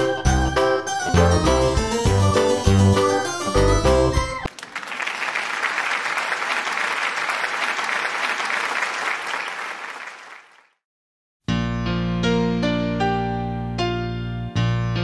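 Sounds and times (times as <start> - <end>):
audience applause: 4.5 - 10.8.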